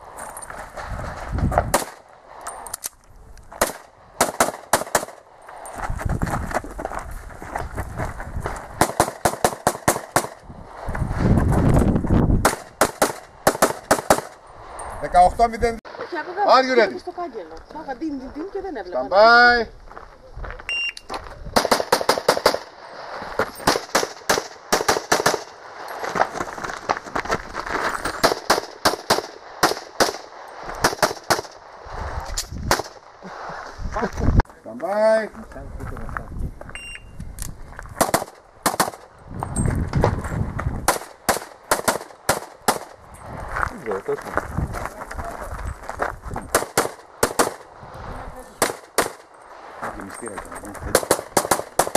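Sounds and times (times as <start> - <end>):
pistol shots: 1.7 - 2.0, 3.6 - 5.2, 8.8 - 10.4, 12.4 - 14.4, 21.6 - 22.7, 23.6 - 25.6, 28.2 - 31.6, 38.0 - 39.0, 40.9 - 43.0, 46.5 - 47.7, 48.6 - 49.3, 50.9 - 51.9.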